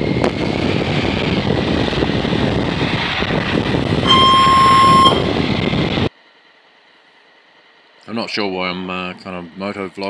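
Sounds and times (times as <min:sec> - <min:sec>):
wind roar and buffeting: 0:00.0 - 0:06.1
high beep: 0:04.0 - 0:05.4.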